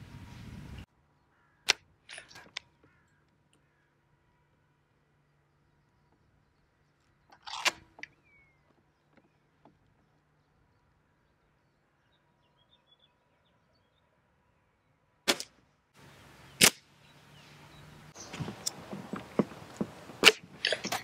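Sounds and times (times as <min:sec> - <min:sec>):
air rifle sharp crack: 0:15.3 - 0:15.6, 0:16.6 - 0:16.9, 0:18.3 - 0:21.0.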